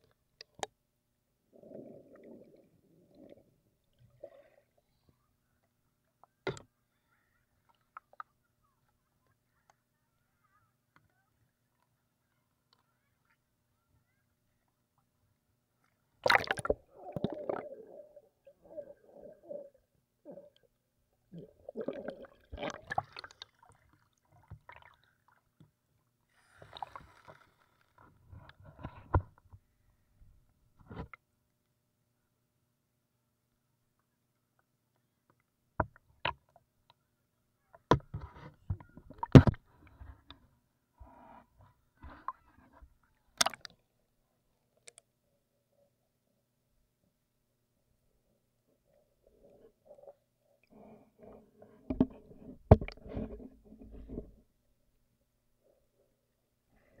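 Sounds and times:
muffled underwater bubbling: 16.2 - 20.7, 21.3 - 23.7
water knocking against camera: 37.9 - 39.6, 51.9 - 54.4.

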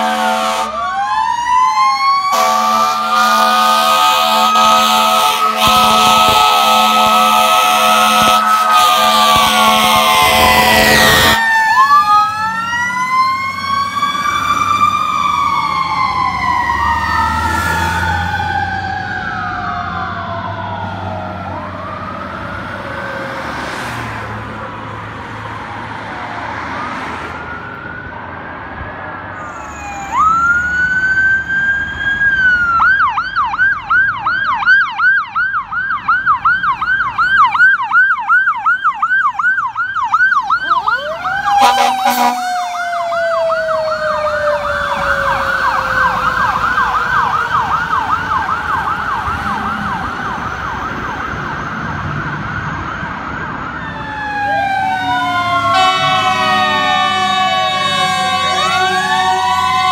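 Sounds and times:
air horn blasts: 0.0 - 0.8, 2.3 - 11.5, 41.5 - 42.6, 55.0 - 59.9
fire engine siren: 0.0 - 59.9
second siren sweeping: 0.0 - 59.9.

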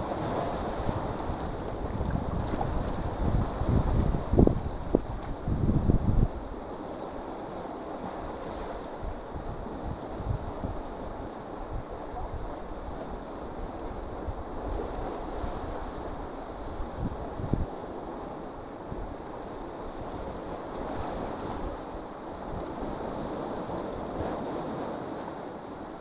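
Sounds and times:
waves breaking on rocky shore: 0.0 - 26.0.

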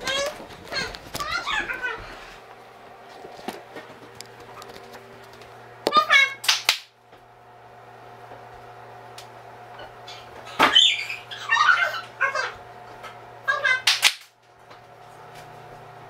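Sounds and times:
steady low hum: 0.0 - 16.0
sharp clap: 6.4 - 6.9, 13.9 - 14.4.

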